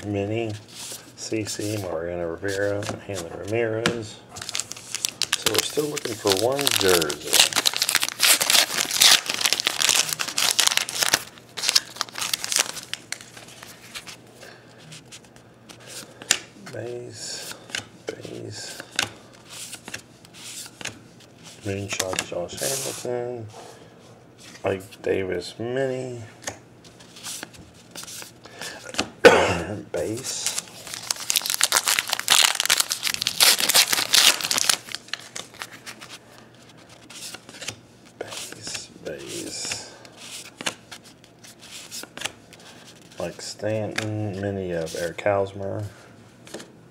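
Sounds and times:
plastic wrapper tearing and crinkling: 0:04.4 - 0:13.3, 0:30.3 - 0:36.0.

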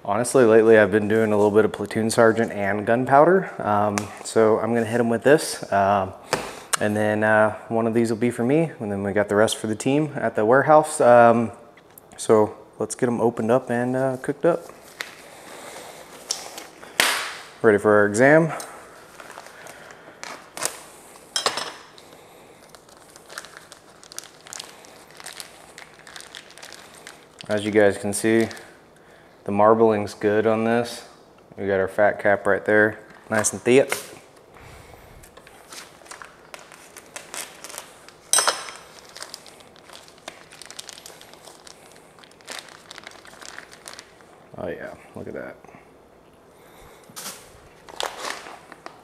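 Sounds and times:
plastic packaging crinkling: 0:14.0 - 0:17.6, 0:18.8 - 0:28.8, 0:35.2 - 0:44.9, 0:47.2 - 0:49.0.

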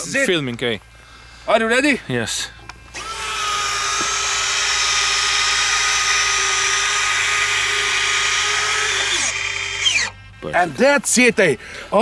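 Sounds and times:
electric motor whine: 0:02.9 - 0:10.4.

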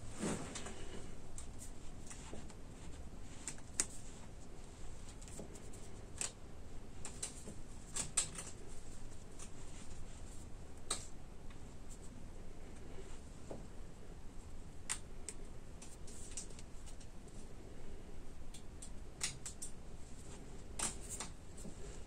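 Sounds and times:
wire cable clicking in hands: 0:03.4 - 0:04.0, 0:05.1 - 0:06.4, 0:07.0 - 0:08.6, 0:10.8 - 0:11.6, 0:14.8 - 0:17.1, 0:18.5 - 0:19.8, 0:20.8 - 0:21.7.

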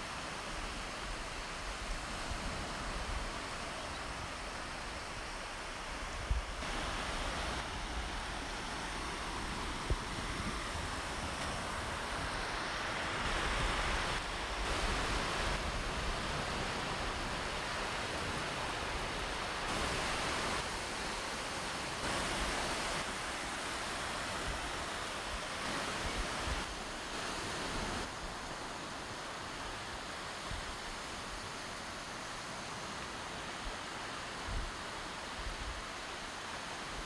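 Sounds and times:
waves breaking on sandy shore: 0:00.0 - 0:37.0
wind on microphone: 0:00.4 - 0:20.7.

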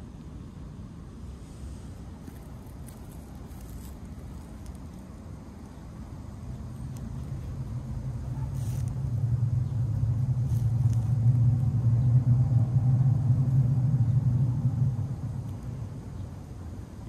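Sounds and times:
faint rustles from stroking: 0:01.6 - 0:05.2, 0:08.4 - 0:09.1.

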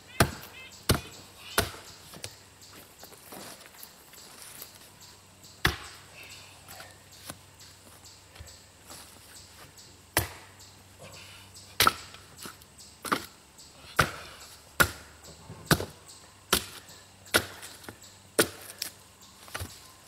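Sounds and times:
axe chopping log: 0:00.2 - 0:02.3, 0:05.6 - 0:06.0, 0:10.2 - 0:10.5, 0:11.8 - 0:12.2, 0:14.0 - 0:15.1, 0:15.7 - 0:18.9.

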